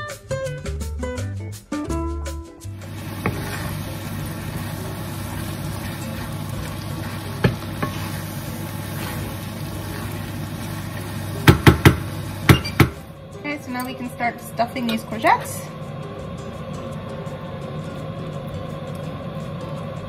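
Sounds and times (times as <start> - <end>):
spatula stirring food: 2.8 - 13.0
food sizzling in a frying pan: 2.8 - 18.7
spatula knocking on a pan: 3.1 - 3.7, 7.3 - 8.1, 11.4 - 13.0.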